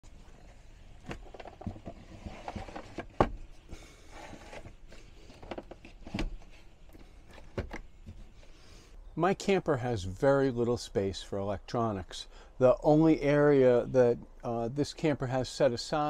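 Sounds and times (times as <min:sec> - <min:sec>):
wood and cables knocking and clicking: 0:05.3 - 0:08.3.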